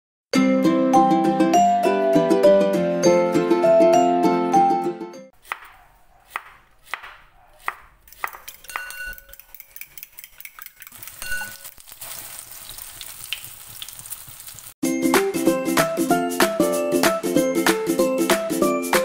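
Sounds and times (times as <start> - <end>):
fork clinking against ceramic bowl: 8.1 - 11.7
oil sizzling in frying pan: 11.0 - 14.8.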